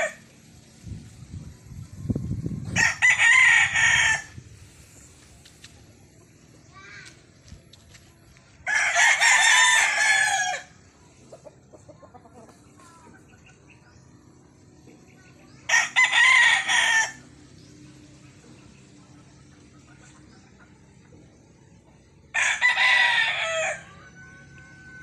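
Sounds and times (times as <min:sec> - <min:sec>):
rooster crowing: 0:02.7 - 0:04.4, 0:08.7 - 0:10.7, 0:15.7 - 0:17.2, 0:22.3 - 0:25.0.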